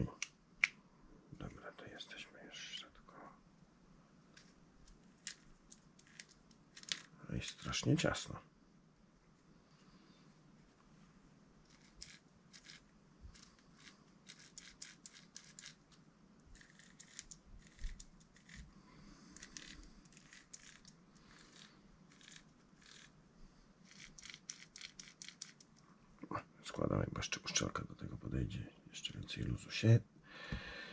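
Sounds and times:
small parts clicking and rattling: 4.4s - 7.7s, 11.7s - 18.7s, 19.3s - 23.1s, 23.8s - 25.8s.

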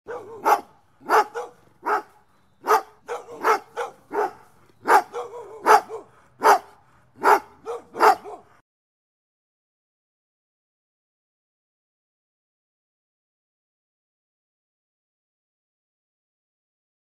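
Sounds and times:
dog barking: 0.1s - 8.6s.

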